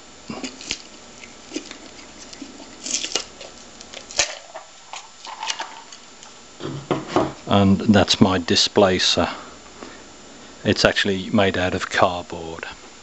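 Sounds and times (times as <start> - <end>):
cardboard and tape rustling: 0.3 - 7.4.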